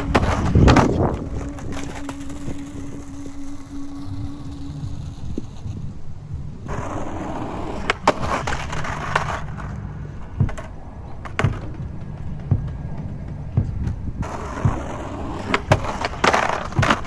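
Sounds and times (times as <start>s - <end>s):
footsteps: 0.0s - 17.0s
skateboard rolling on asphalt: 0.0s - 17.0s
skateboard knocks: 6.7s - 17.0s.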